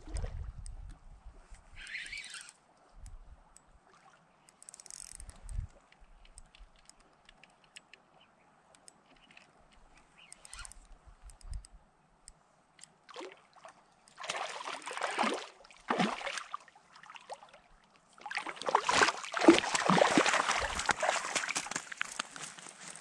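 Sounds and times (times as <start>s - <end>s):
river water splashing: 13.1s - 23.0s.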